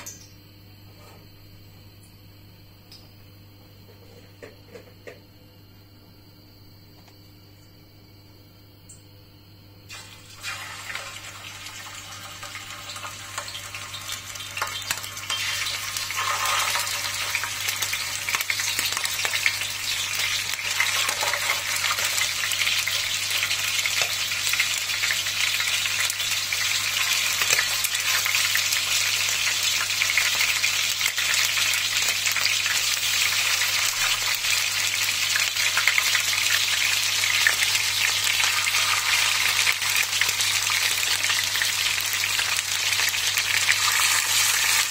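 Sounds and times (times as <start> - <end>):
chicken sizzling in oil: 9.9 - 44.9.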